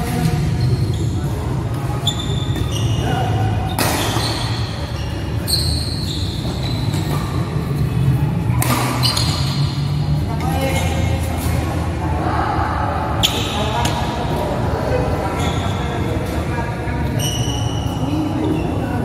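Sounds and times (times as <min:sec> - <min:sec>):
shoes squeaking on court floor: 0:00.0 - 0:11.6, 0:15.3 - 0:19.0
racket striking shuttlecock: 0:03.7 - 0:04.6, 0:08.5 - 0:09.6.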